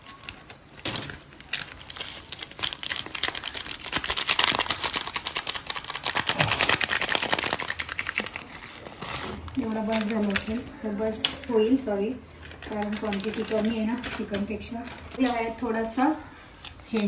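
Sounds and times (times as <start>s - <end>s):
rapid clicking and scraping in bowl: 12.5s - 15.2s.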